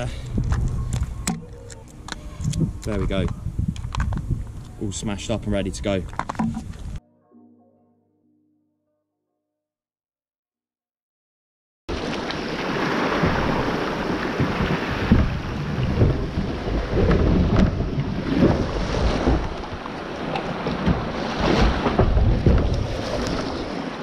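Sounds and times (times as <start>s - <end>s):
wind gusting on microphone: 0.0s - 7.0s, 11.9s - 24.0s
water splashing against kayak hull: 11.9s - 24.0s.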